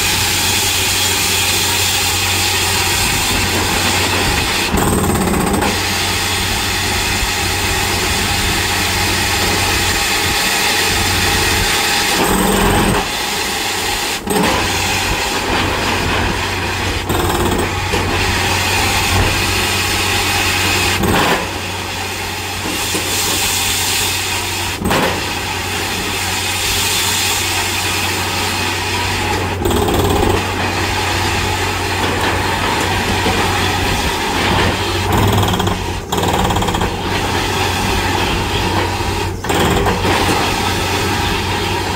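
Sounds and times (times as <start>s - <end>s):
drilling rig machine din: 0.0s - 41.9s.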